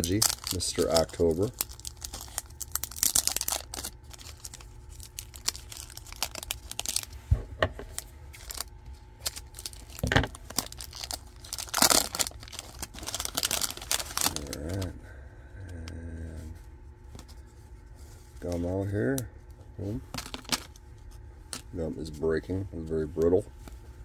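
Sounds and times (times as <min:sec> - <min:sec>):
cellophane wrapper crinkling and tearing: 0:00.0 - 0:07.2, 0:07.9 - 0:15.0, 0:20.0 - 0:21.8.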